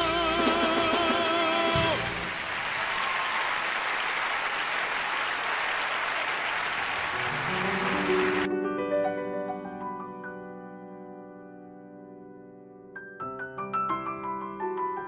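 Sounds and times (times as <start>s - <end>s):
audience applauding: 1.4s - 8.5s
piano notes: 7.1s - 15.0s.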